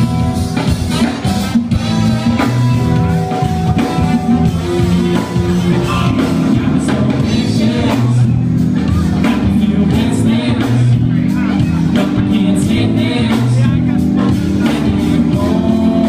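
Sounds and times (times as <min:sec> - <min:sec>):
live rock band playing: 0:00.0 - 0:16.0
person singing: 0:03.8 - 0:16.0.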